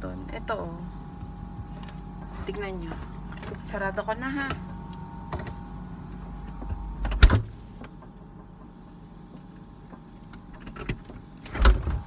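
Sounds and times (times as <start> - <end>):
fridge hum: 0.0 - 12.0
refrigerator door thud: 6.7 - 7.5.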